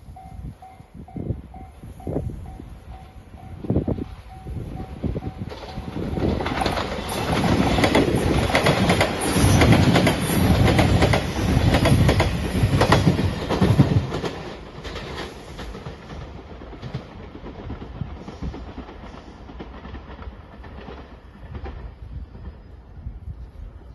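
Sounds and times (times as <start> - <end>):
electric train passing at speed: 0.0 - 23.9
train wheels clacking over rail joints: 4.8 - 22.6.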